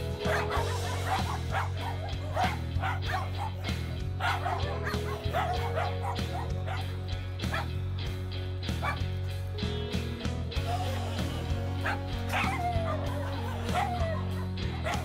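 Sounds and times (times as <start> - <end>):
dogs barking and yipping: 0.0 - 7.8, 8.6 - 9.2, 11.7 - 15.0
background music with drone: 0.0 - 15.0.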